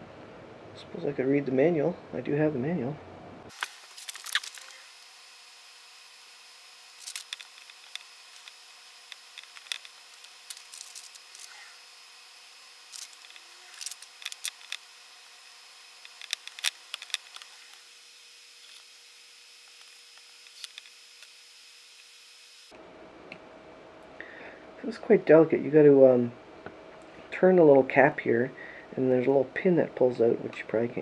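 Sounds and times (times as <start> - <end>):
faint steady hum: 0.0 - 31.0
paper pages rustling: 3.5 - 4.8, 7.0 - 11.6
small plastic parts clicking: 6.9 - 11.6, 12.9 - 14.8, 16.0 - 17.8, 19.6 - 21.4.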